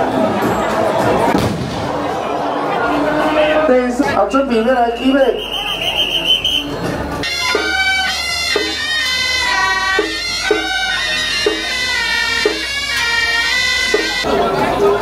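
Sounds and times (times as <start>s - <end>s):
reed horn melody: 5.3s - 14.6s.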